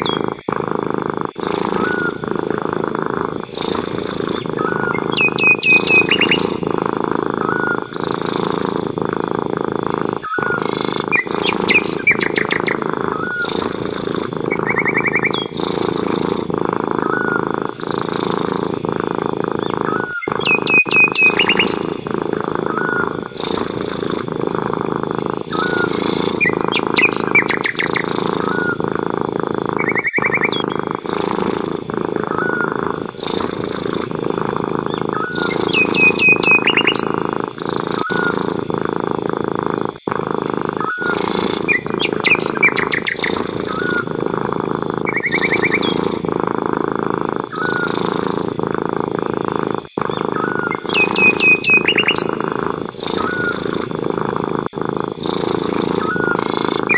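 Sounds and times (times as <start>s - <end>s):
bird trills and chirps: 0.0s - 0.4s, 3.6s - 6.8s, 10.2s - 16.0s, 19.6s - 22.1s, 25.4s - 28.8s, 29.8s - 31.6s, 34.8s - 38.5s, 40.8s - 44.2s, 45.0s - 46.0s, 50.1s - 52.4s, 53.0s - 53.8s
cat purring: 0.0s - 56.9s.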